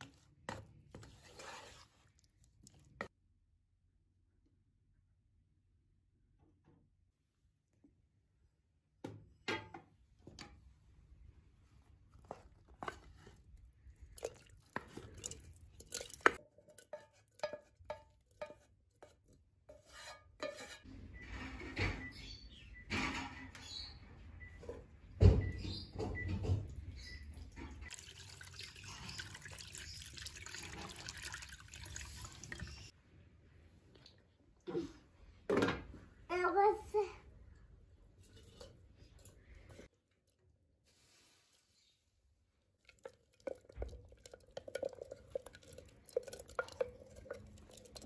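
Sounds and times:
water poured into bowl: 0:27.8 - 0:32.9, 0:42.8 - 0:48.0.

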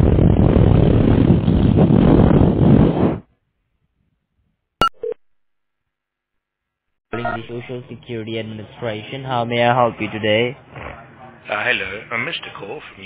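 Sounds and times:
short beeps: 0:07.2 - 0:07.5.

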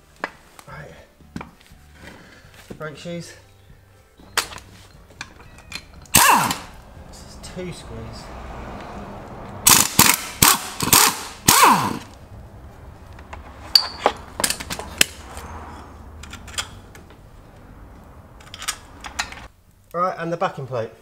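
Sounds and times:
metal parts clinking: 0:04.4 - 0:06.7, 0:13.7 - 0:16.8, 0:18.4 - 0:19.5
air wrench bursts: 0:05.7 - 0:06.8, 0:09.6 - 0:12.2.

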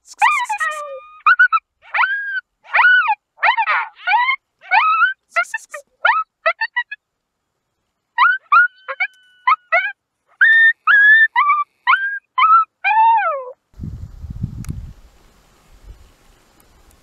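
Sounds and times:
coyote yipping and howling: 0:00.2 - 0:07.0, 0:08.2 - 0:13.6.

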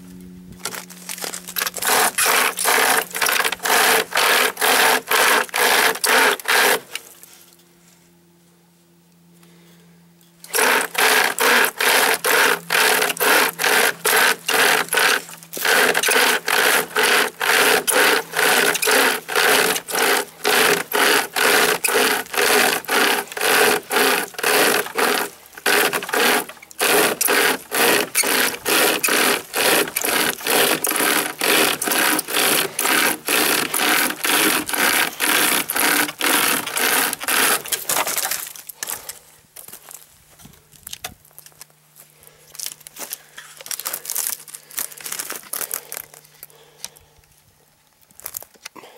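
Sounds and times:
chainsaw chain rasping through log: 0:00.6 - 0:07.3, 0:10.4 - 0:39.2, 0:42.6 - 0:46.8.

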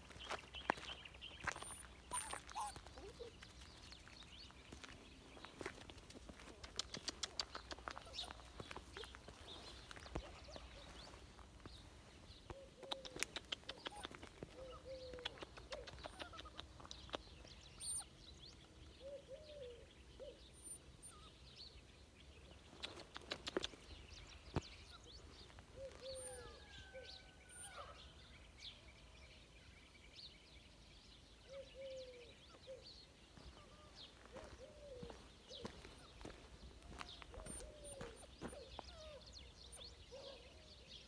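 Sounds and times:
small birds chirping: 0:00.0 - 0:41.0
sharp clicks: 0:12.8 - 0:14.2.

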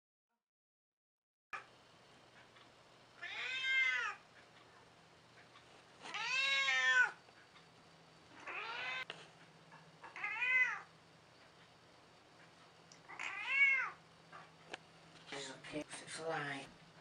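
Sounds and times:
cat meowing: 0:03.2 - 0:04.2, 0:06.1 - 0:07.2, 0:08.4 - 0:09.1, 0:10.1 - 0:10.9, 0:13.1 - 0:14.0.

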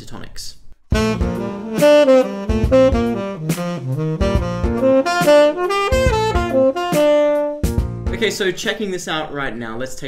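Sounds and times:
tenor saxophone jazz line: 0:00.9 - 0:07.9
rhythmic backing track: 0:00.9 - 0:08.7.

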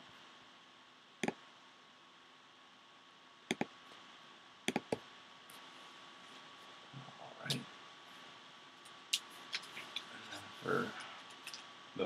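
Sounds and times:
faint room hiss: 0:00.0 - 0:12.0
computer mouse clicks: 0:03.5 - 0:03.7, 0:04.7 - 0:05.0.

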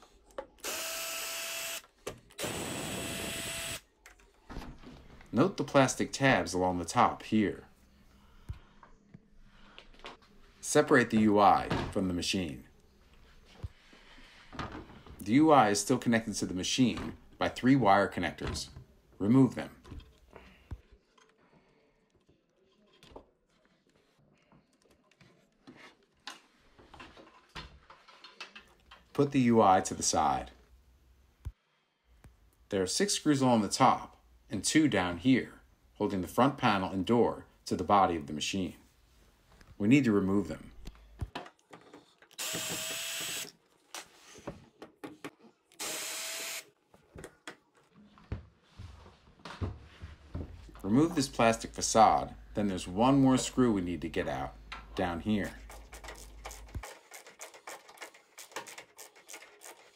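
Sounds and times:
drill whining: 0:00.6 - 0:03.8, 0:42.4 - 0:43.5, 0:45.8 - 0:46.7.

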